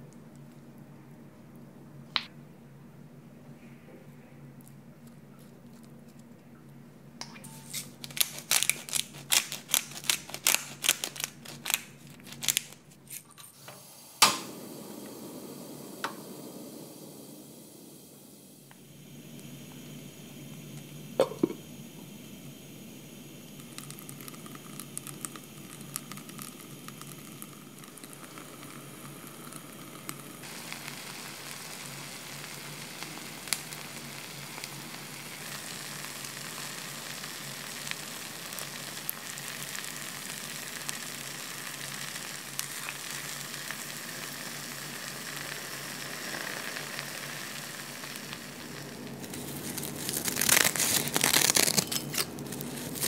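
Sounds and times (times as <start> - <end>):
food sizzling in hot pot: 7.3 - 53.0
dry seaweed sheet crinkling: 7.6 - 13.2, 48.6 - 53.0.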